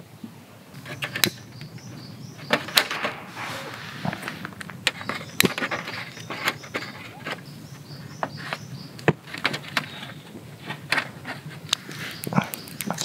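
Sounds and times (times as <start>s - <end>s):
faint high chirping: 0.8s - 9.1s.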